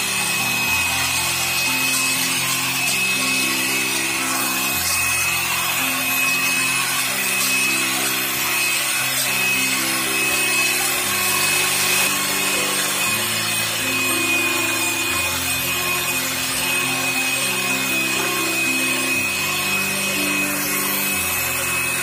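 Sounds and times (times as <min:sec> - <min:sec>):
electric hand mixer whining: 0:00.0 - 0:22.0
piano music: 0:00.0 - 0:22.0.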